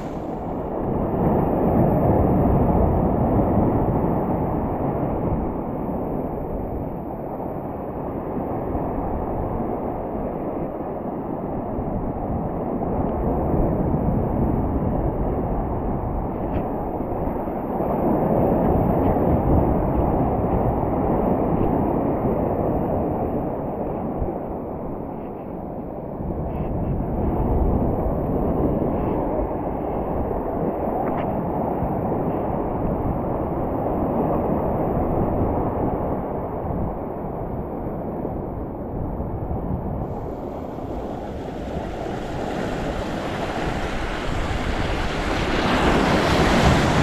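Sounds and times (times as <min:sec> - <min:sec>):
ocean surf against rocks: 0:00.0 - 0:09.9, 0:40.0 - 0:47.0
wind buffeting microphone: 0:00.0 - 0:47.0.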